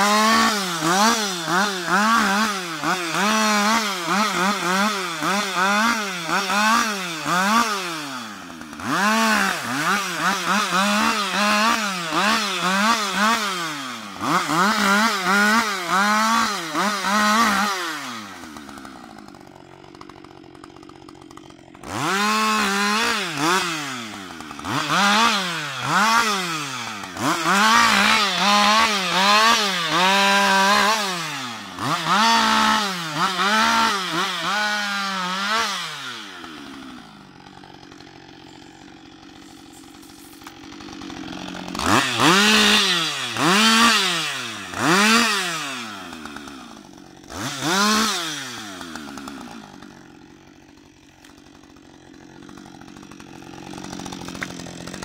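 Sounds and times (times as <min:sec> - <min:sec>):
chainsaw revving: 0:00.0 - 0:55.0.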